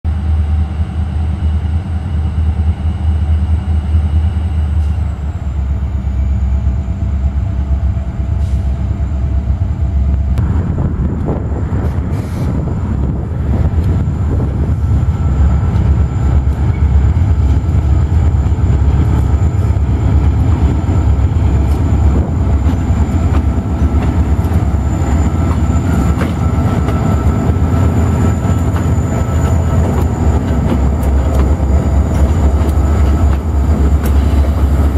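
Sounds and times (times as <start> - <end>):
freight train passing: 0.1 - 34.9
diesel engine rumble: 4.7 - 34.9.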